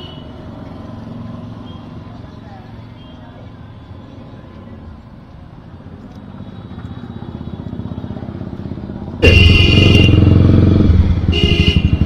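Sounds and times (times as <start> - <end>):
street traffic: 0.0 - 12.0
motorcycle engine running: 6.0 - 12.0.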